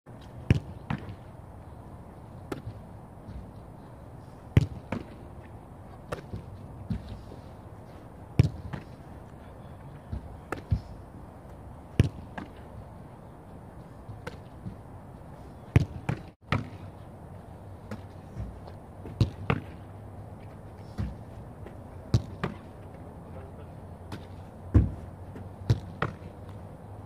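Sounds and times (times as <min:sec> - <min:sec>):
football thuds: 0:04.5 - 0:05.2, 0:08.3 - 0:09.0, 0:11.9 - 0:12.7, 0:15.7 - 0:16.8, 0:17.8 - 0:19.9, 0:20.8 - 0:22.7, 0:24.1 - 0:26.5.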